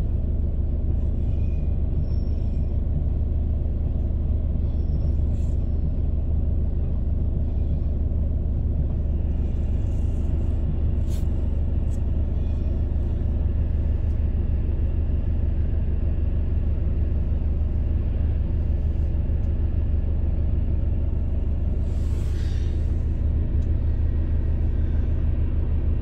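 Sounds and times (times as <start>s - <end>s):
car driving rumble inside cabin: 0.0s - 26.0s.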